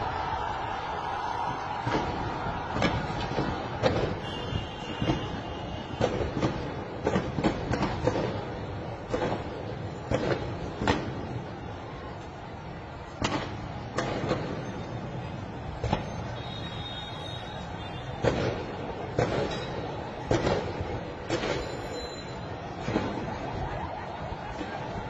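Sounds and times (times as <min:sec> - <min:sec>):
sharp cracks or bangs: 0:01.4 - 0:11.1.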